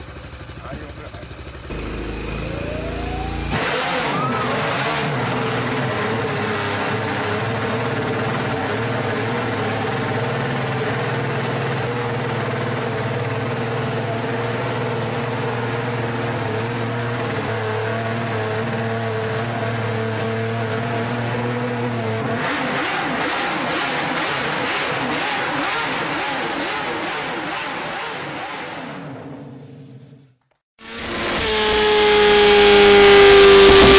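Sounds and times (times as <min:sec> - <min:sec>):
roller starter: 0:00.0 - 0:13.8
race engine revving and running: 0:01.6 - 0:29.6, 0:30.8 - 0:33.9.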